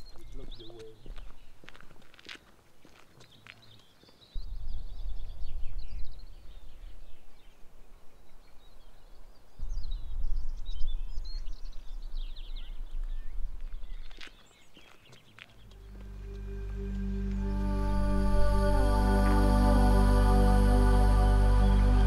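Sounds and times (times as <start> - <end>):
small birds chirping: 0.0 - 17.0
low rumbling noise: 15.7 - 22.0.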